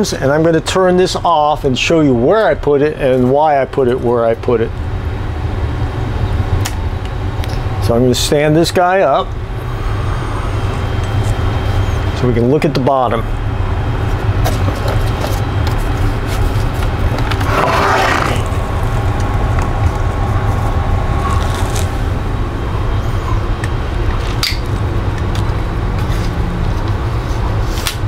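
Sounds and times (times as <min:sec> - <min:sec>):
low rumble of air handlers: 0:00.0 - 0:28.0
scraping shuffle on workbench: 0:14.5 - 0:18.5.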